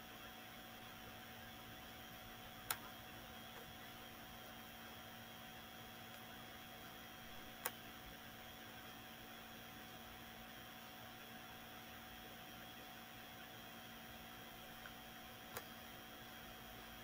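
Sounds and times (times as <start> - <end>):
faint room tone hum and hiss: 0.0 - 17.0
sharp clicks: 2.6 - 2.9, 7.6 - 7.8.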